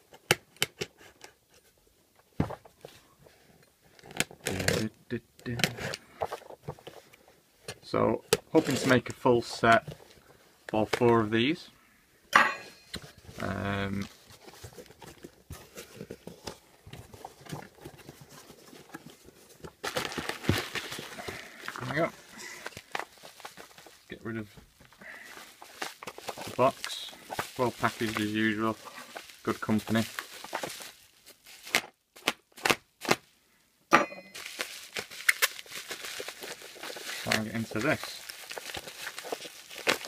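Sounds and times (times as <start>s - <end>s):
plastic rustling: 5.8s - 7.7s, 8.4s - 11.3s, 13.0s - 33.3s, 34.3s - 40.0s
bubble wrap crinkling: 13.0s - 33.3s, 34.3s - 40.0s
cardboard box being opened: 14.1s - 24.1s, 24.8s - 31.8s, 34.4s - 40.0s
knife cutting plastic packaging: 34.4s - 40.0s.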